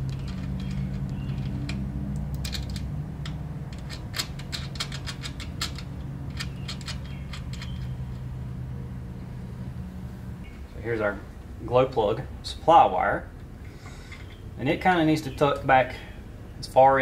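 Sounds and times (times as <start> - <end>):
wires and metal terminals clicking: 0.0 - 8.4
steady low hum: 0.0 - 17.0.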